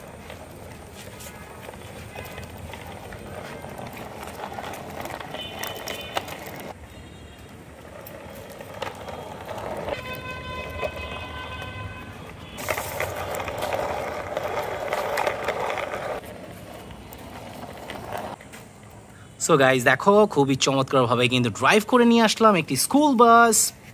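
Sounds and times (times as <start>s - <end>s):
plastic toy wheels scraping concrete: 0.0s - 19.1s
horn-like pitched tone: 10.0s - 12.8s.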